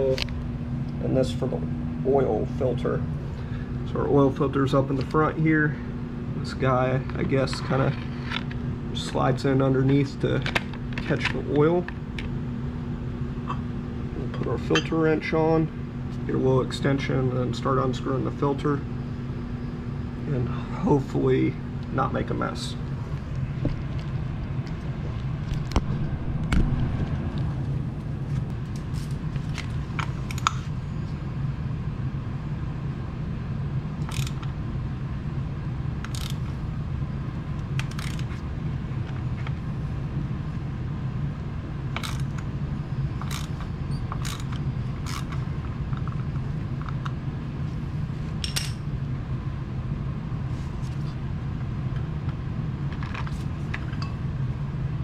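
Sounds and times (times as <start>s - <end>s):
steady low hum: 0.0s - 55.0s
ratchet clicking: 34.0s - 34.4s, 36.0s - 36.4s, 37.8s - 38.3s, 43.2s - 43.6s, 44.2s - 45.4s.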